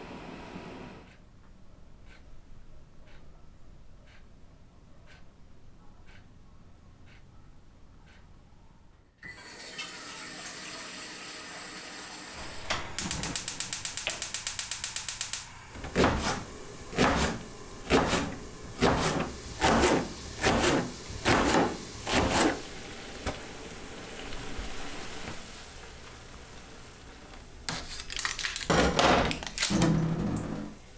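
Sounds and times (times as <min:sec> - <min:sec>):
steady hiss: 0:12.4 - 0:15.8, 0:16.4 - 0:27.8
rapid clicks: 0:13.0 - 0:15.5.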